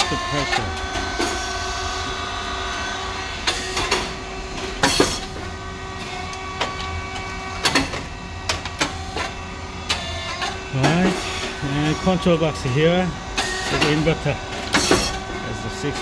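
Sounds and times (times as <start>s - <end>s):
motor and pump hum: 0.0s - 16.0s
sharp mechanical clicks and knocks: 6.3s - 11.2s, 13.4s - 15.3s.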